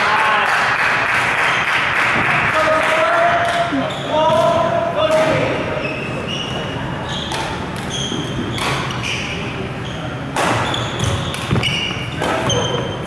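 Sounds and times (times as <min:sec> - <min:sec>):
shoes squeaking on court floor: 0:03.6 - 0:04.6, 0:05.3 - 0:13.0
racket hitting shuttlecock: 0:07.3 - 0:09.3, 0:10.3 - 0:12.9.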